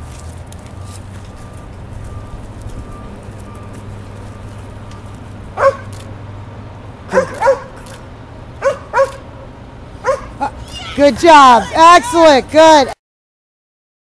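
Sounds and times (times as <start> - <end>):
dog barking: 5.6 - 6.0, 7.1 - 7.8, 8.6 - 9.2, 10.0 - 10.5.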